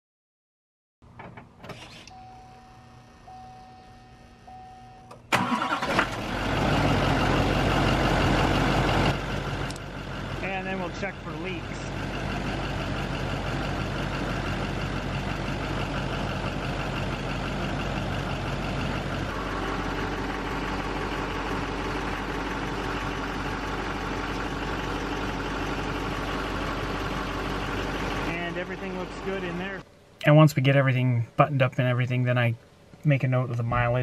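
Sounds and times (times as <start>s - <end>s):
diesel engine idling: 5.3s - 30.2s.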